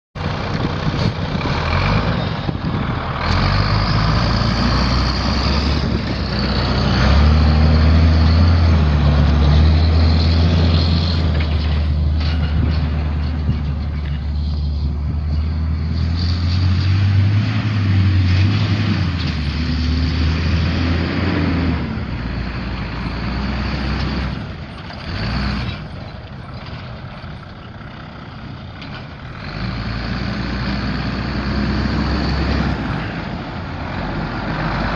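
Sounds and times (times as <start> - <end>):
diesel engine running: 0.2 - 34.9.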